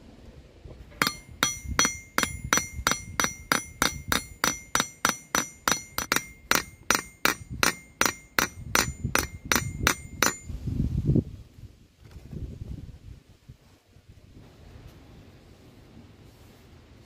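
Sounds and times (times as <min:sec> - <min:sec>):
hammer striking metal rivet: 0:01.0 - 0:10.5.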